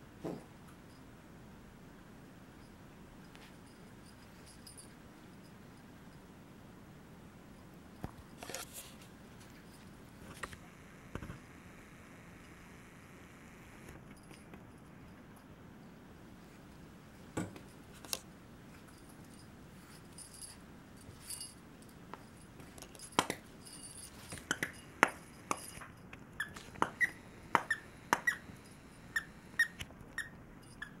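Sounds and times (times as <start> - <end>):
dog toy squeaking: 26.4 - 28.5, 29.2 - 31.0.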